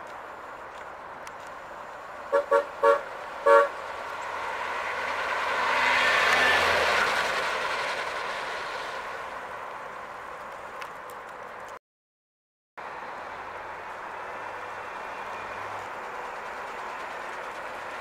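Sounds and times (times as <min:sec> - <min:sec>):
car horn tooting: 0:02.3 - 0:03.8
car driving past: 0:02.4 - 0:09.6.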